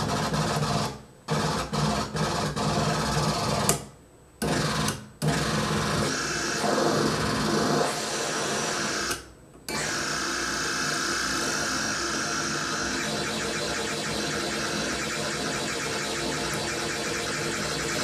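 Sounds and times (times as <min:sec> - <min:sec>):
harsh electronic buzz: 0:04.4 - 0:18.0.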